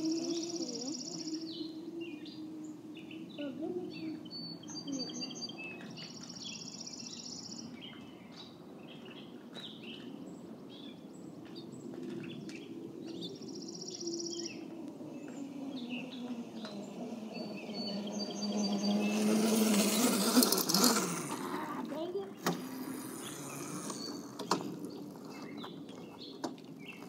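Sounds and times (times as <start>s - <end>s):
low motor hum: 0.0s - 6.0s, 11.6s - 27.0s
songbirds singing: 0.0s - 27.0s.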